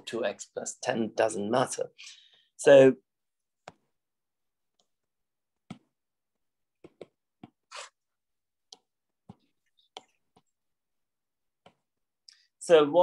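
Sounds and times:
soft taps on touchscreen: 3.6 - 3.9, 6.8 - 7.6, 11.6 - 11.9.

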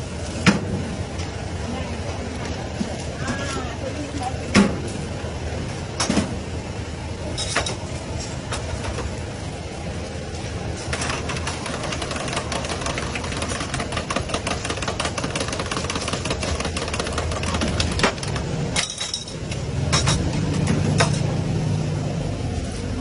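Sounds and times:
steady background noise: 0.0 - 23.0
metal spoon clinking against jugs: 18.8 - 21.3.

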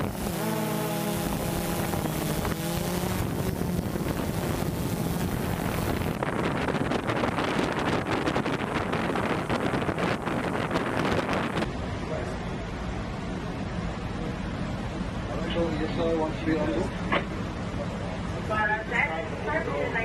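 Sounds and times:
wind on microphone: 0.0 - 11.7
boat engine hum: 0.0 - 15.3
rush of wind and water: 1.0 - 15.3.

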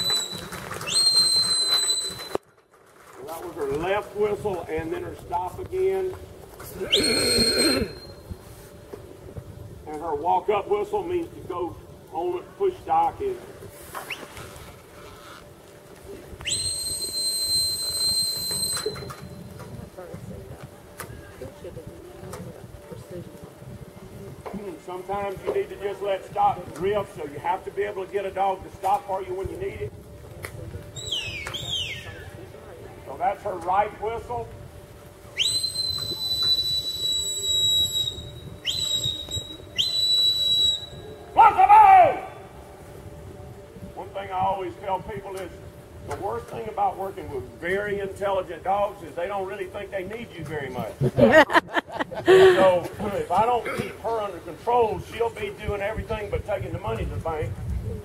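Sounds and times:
person whistling a command: 0.0 - 2.4, 6.8 - 8.2, 16.4 - 19.2, 31.0 - 32.2, 35.4 - 42.0.

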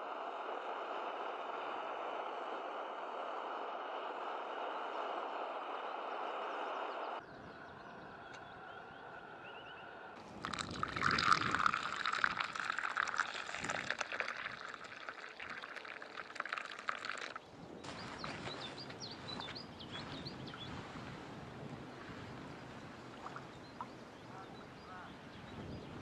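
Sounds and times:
liquid pouring into wooden cup: 10.2 - 17.4.

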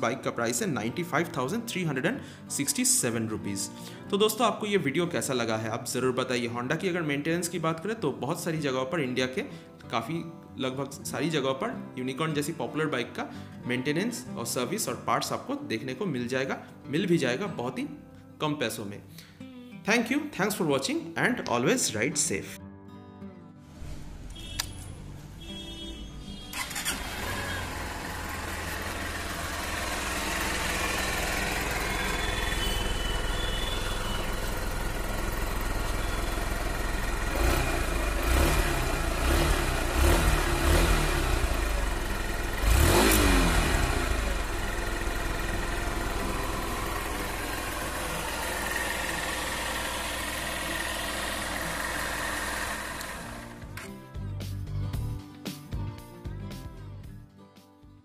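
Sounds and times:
motorcycle engine idling: 26.4 - 53.6
motorcycle engine revving: 26.4 - 53.8
motorcycle engine starting: 26.4 - 53.9.

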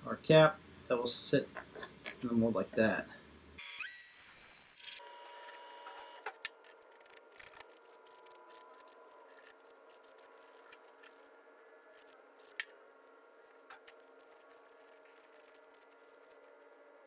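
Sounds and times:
faint steady hum: 0.0 - 3.6, 4.9 - 17.0.

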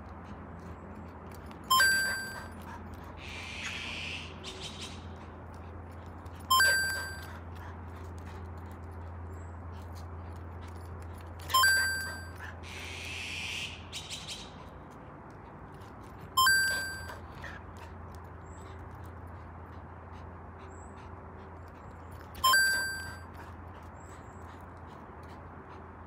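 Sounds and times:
bright ringing chime: 1.7 - 2.5, 6.5 - 7.3, 11.5 - 12.3, 16.4 - 17.2, 22.4 - 23.2.

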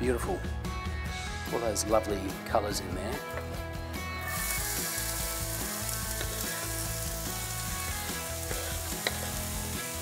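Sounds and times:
vegetables sizzling in a frying pan: 4.2 - 10.0.

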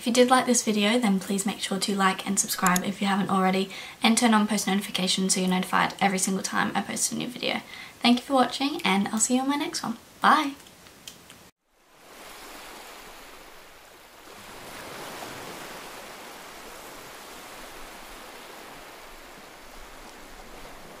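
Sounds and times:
waves breaking on beach: 11.7 - 21.0.

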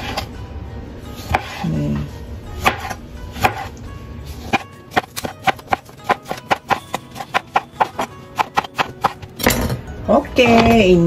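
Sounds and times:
knife chopping on plastic board: 1.3 - 1.6, 2.6 - 3.7, 4.5 - 9.3.

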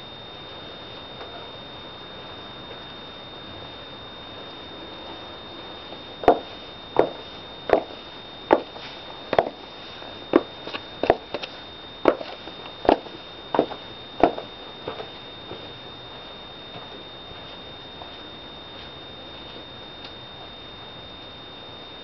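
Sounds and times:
high-heeled footsteps: 5.9 - 18.2.

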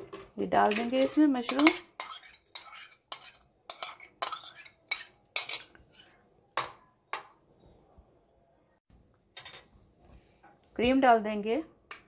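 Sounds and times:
steel spoon scraping a bowl: 0.6 - 6.2
spoon clinking: 0.7 - 7.4.

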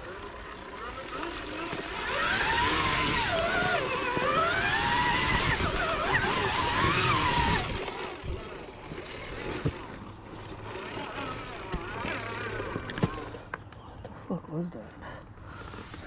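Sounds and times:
motorbike engine revving: 0.0 - 13.6.

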